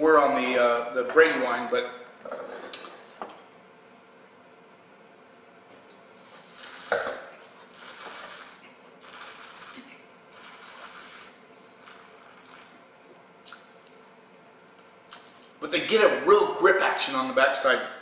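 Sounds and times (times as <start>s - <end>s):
person slurping wine: 6.4s - 12.7s.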